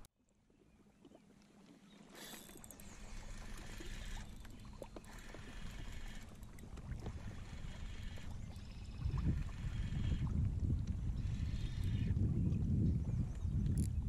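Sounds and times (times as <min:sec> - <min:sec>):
waves lapping against kayak hull: 0:00.0 - 0:14.0
wind rumbling on microphone: 0:02.8 - 0:14.0.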